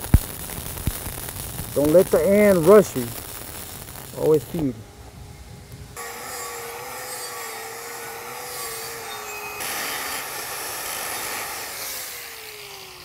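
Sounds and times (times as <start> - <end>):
angle grinder grinding metal: 6.0 - 13.0
grinder spinning down: 6.0 - 13.0.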